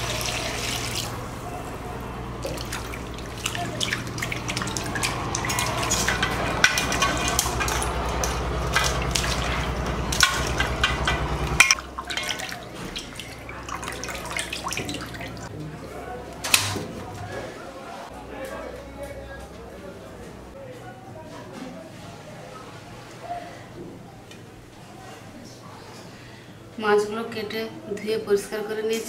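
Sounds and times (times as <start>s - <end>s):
water splashing and dripping: 0.0s - 1.2s, 2.4s - 15.5s
steady low hum: 0.0s - 16.4s
sharp clicks and knocks: 10.1s - 11.8s.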